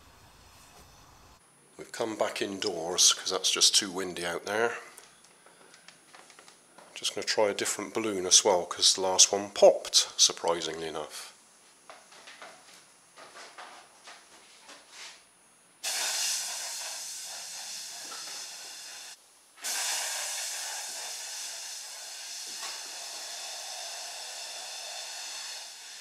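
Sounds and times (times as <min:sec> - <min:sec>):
air hissing out of balloon: 0:00.0 - 0:01.4, 0:15.8 - 0:26.0.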